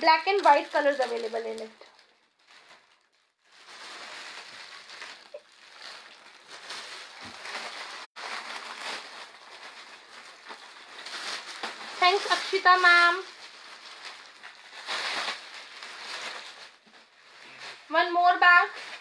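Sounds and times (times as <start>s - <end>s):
plastic packaging crinkling: 0.0s - 19.0s.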